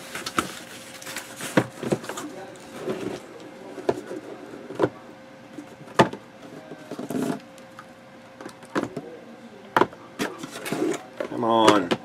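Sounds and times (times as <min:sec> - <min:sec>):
cardboard rustle: 0:00.0 - 0:03.3
faint steady hum: 0:00.0 - 0:12.0.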